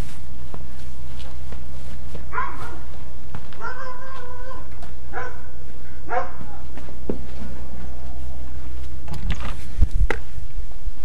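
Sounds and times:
steady low hum: 0:00.0 - 0:11.0
dogs barking: 0:02.3 - 0:03.0, 0:03.6 - 0:06.8.

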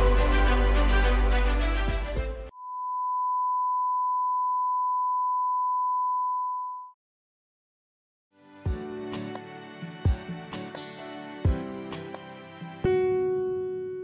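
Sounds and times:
sine test tone: 0:02.5 - 0:07.0.

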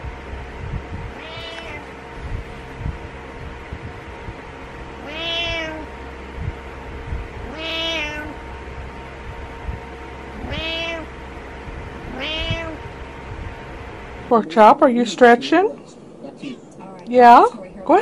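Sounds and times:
cat meowing: 0:01.1 - 0:01.9, 0:05.0 - 0:05.9, 0:07.4 - 0:08.4, 0:10.4 - 0:11.1, 0:12.1 - 0:12.8.

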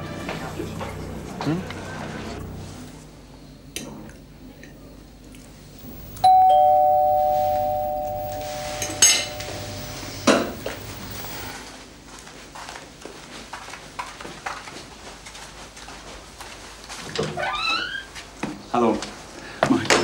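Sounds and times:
two-tone doorbell chime: 0:06.2 - 0:10.8.

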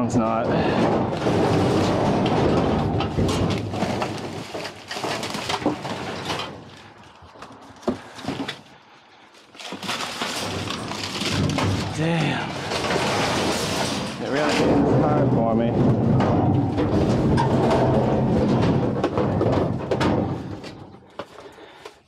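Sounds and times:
wire baskets knocking and rattling: 0:00.0 - 0:06.8, 0:09.6 - 0:21.4
paper and plastic bags rustling: 0:03.0 - 0:15.6.

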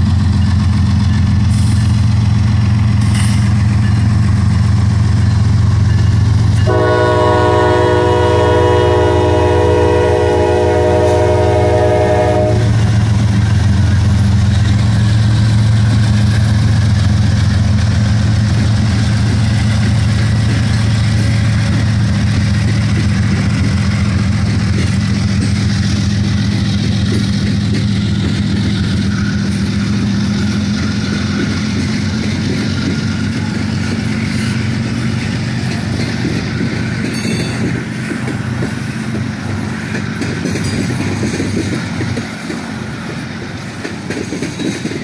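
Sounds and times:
diesel locomotive engines droning: 0:00.0 - 0:45.0
locomotive air horn chord: 0:06.6 - 0:12.9.

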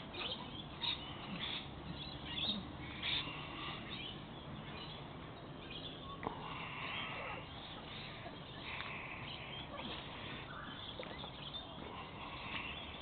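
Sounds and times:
puppies yipping: 0:00.1 - 0:03.3.

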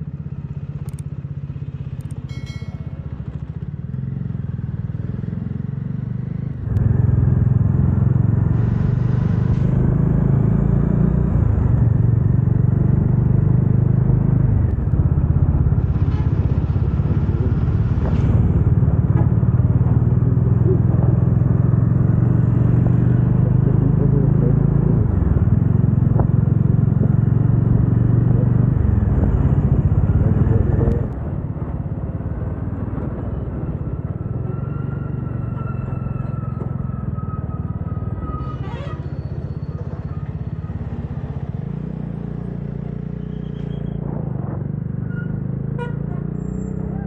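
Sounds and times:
motorcycle engine running: 0:00.0 - 0:34.3
road noise: 0:00.0 - 0:47.0.

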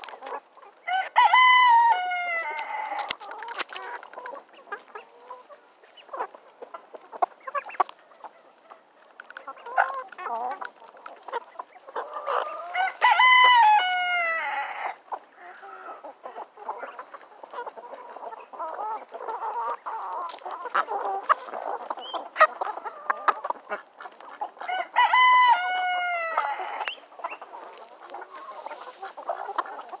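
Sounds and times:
chickens clucking: 0:00.0 - 0:30.0
rooster crowing: 0:00.8 - 0:03.2, 0:12.3 - 0:15.0, 0:24.6 - 0:27.0.

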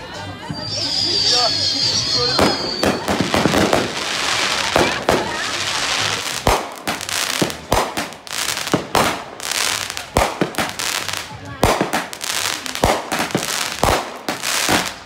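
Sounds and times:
fireworks bangs: 0:00.5 - 0:15.0.

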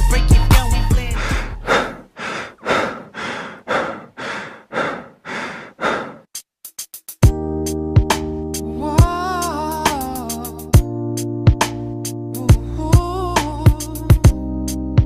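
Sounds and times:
rhythmic heavy breathing: 0:00.8 - 0:07.1.

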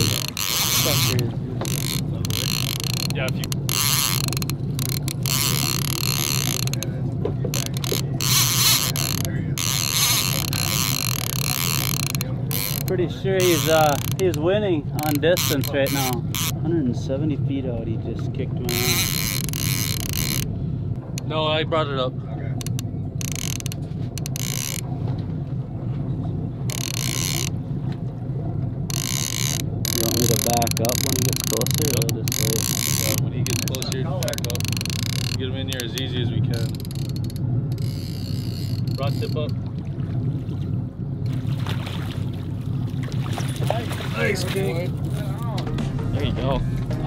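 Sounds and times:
fishing reel ratchet clicking: 0:00.0 - 0:06.9, 0:07.5 - 0:16.6, 0:18.7 - 0:20.5, 0:22.6 - 0:24.8, 0:26.7 - 0:27.5, 0:28.9 - 0:39.6
boat engine hum: 0:00.0 - 0:47.0.

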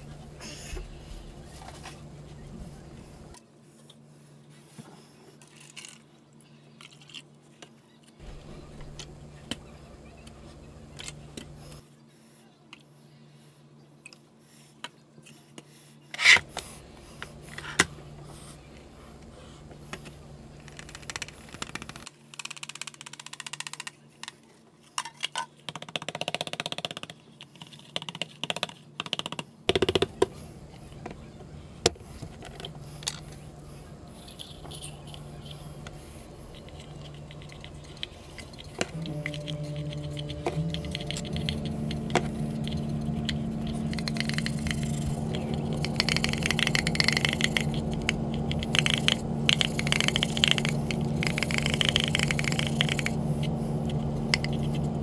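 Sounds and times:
plastic cups clicking and knocking: 0:45.6 - 0:53.2.

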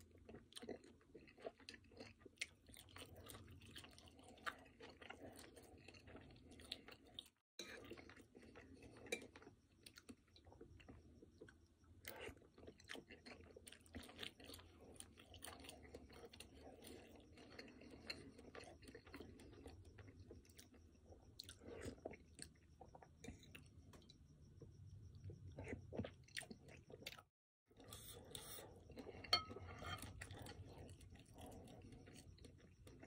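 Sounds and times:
person chewing: 0:00.0 - 0:24.2, 0:25.2 - 0:33.0
metal spoon scraping ceramic bowl: 0:29.3 - 0:30.3.

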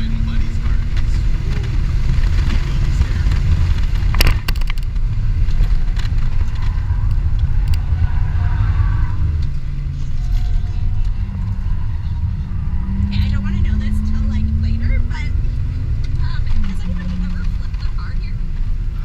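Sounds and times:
car engine and road noise rumble: 0:00.0 - 0:19.0
clicks or rattles: 0:03.3 - 0:07.8.

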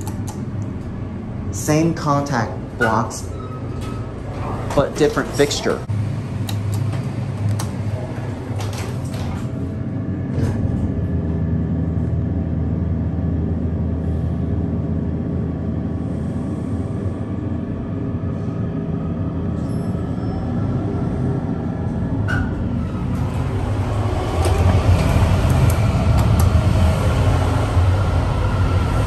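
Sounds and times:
elevator pump motor humming: 0:00.0 - 0:29.0
elevator button and doors clunking: 0:02.3 - 0:05.8, 0:06.4 - 0:11.3, 0:21.7 - 0:27.4.

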